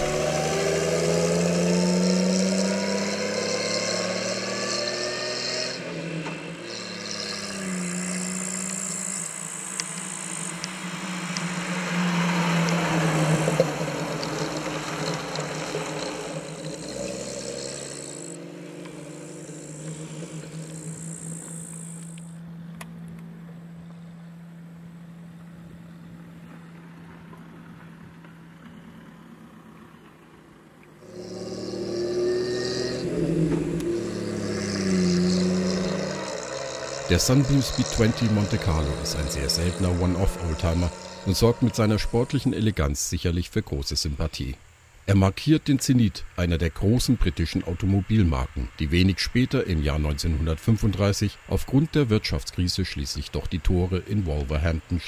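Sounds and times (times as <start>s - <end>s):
car engine accelerating: 0.0s - 43.0s.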